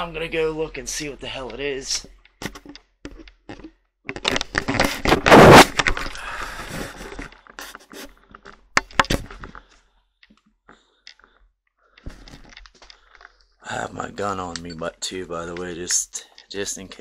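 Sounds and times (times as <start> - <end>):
sharp clicks and knocks: 0.6 - 6.2, 6.9 - 13.6, 14.2 - 17.0
scraping rub against microphone: 4.7 - 6.0, 6.6 - 8.3.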